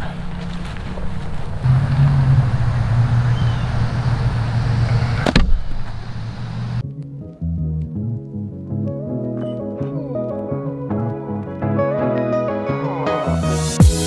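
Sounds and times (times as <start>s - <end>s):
music: 6.8s - 14.0s.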